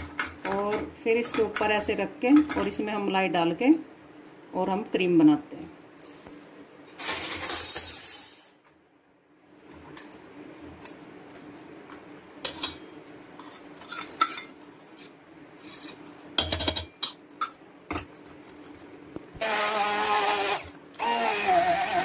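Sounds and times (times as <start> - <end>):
electric hand blender whirring: 19.4 - 22.0.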